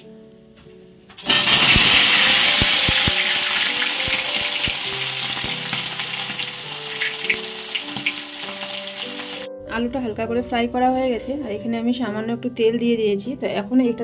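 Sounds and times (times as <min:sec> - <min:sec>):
potatoes sizzling in oil: 0:01.2 - 0:09.5.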